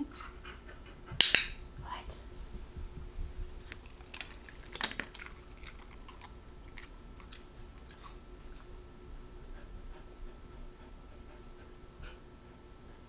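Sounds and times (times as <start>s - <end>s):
dog chewing crunchy treat: 3.6s - 8.7s.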